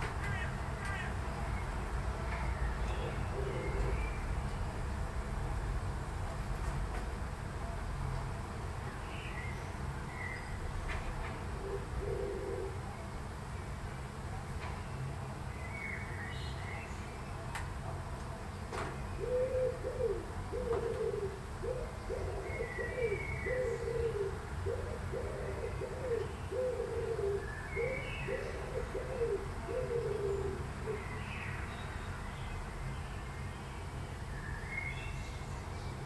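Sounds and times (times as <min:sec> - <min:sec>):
pigeon cooing: 0:03.0 - 0:04.1, 0:11.5 - 0:12.9, 0:19.2 - 0:31.1.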